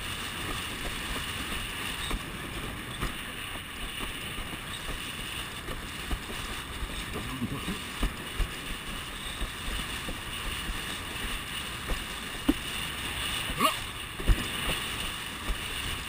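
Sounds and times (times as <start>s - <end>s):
rush of water and wind: 0.0s - 16.0s
board hull knocking on waves: 11.8s - 12.7s, 14.2s - 14.8s.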